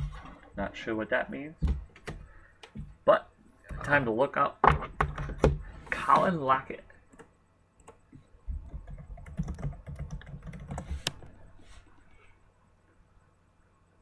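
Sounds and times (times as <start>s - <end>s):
keyboard typing: 7.1s - 11.3s.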